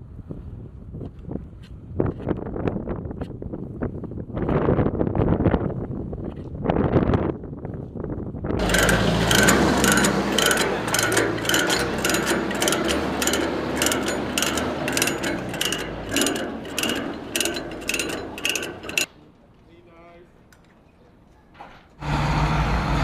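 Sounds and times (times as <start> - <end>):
ratchet clicks: 8.6 - 19.1.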